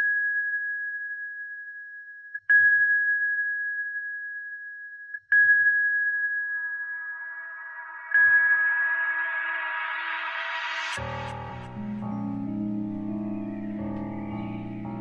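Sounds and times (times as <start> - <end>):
ambient music: 7.2 - 15.0.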